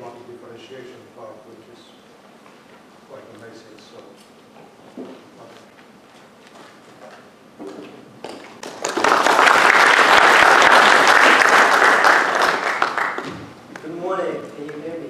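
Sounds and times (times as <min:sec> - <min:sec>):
audience applauding: 0:08.6 - 0:13.4.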